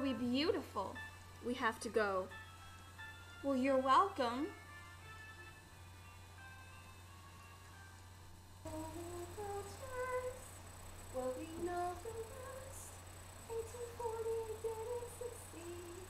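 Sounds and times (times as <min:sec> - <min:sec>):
faint low hum: 0:00.0 - 0:16.0
girl humming a tune: 0:11.1 - 0:16.0.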